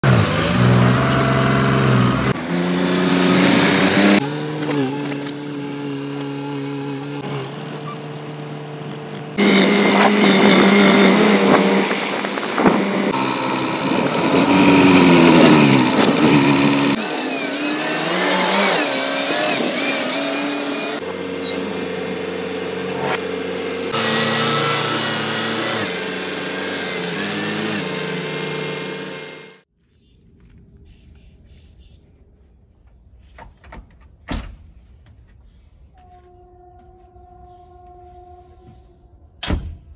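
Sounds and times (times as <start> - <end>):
diesel tractor engines running: 0.0 - 29.6
engine revving: 0.0 - 29.7.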